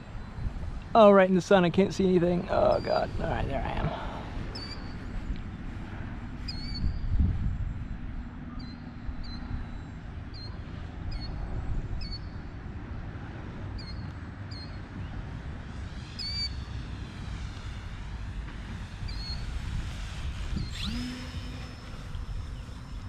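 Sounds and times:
wind on microphone: 0.0 - 0.9, 1.8 - 23.0
model plane motor buzzing: 15.8 - 23.0.

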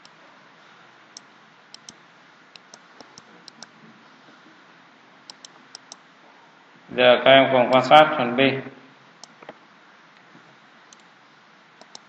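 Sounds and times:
faint microphone hiss: 0.0 - 12.0
computer mouse clicking: 1.2 - 3.7, 5.3 - 6.0, 9.2 - 9.6, 10.9 - 11.1, 11.8 - 12.0.

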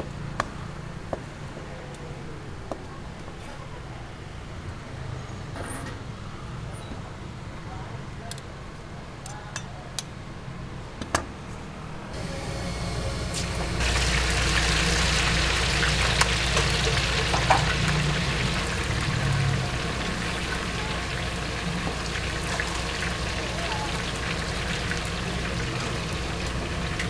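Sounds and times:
food deep-frying in hot oil: 12.2 - 27.0.

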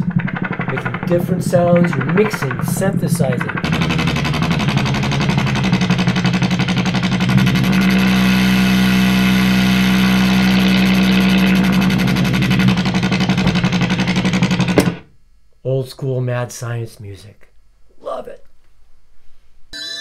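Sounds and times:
buzzy pulsing synthesizer drone: 0.0 - 15.1.

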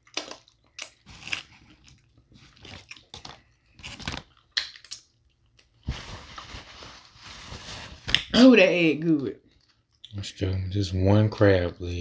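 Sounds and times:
crab shell crunching: 0.0 - 5.7
wet chewing and biting: 0.0 - 5.8.

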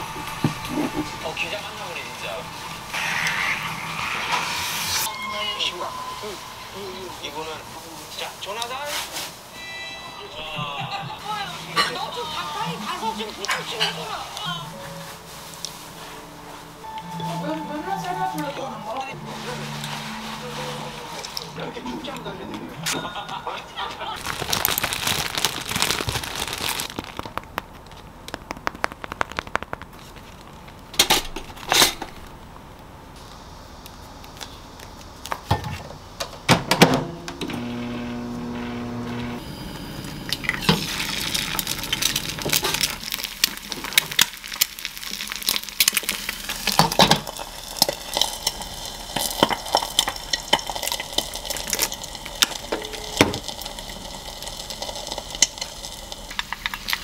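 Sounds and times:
steady hum: 0.0 - 8.2.

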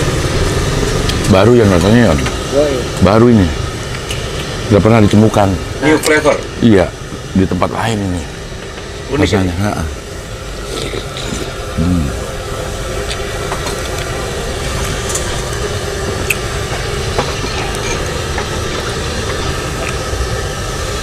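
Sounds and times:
man humming: 10.6 - 12.3.

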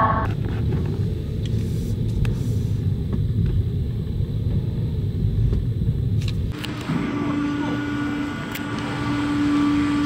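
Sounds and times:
car engine rumble from inside: 0.0 - 6.9.

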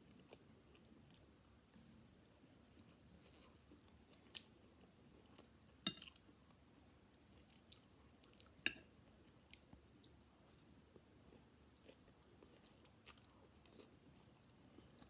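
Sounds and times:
faint chewing: 0.0 - 15.0
fork clinking on ceramic plate: 5.9 - 6.1.

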